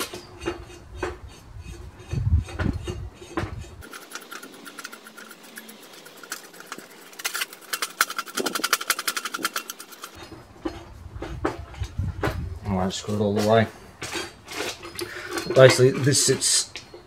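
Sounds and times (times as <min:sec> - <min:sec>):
metallic clicks and rattles of threaded bar: 0:02.8 - 0:10.8.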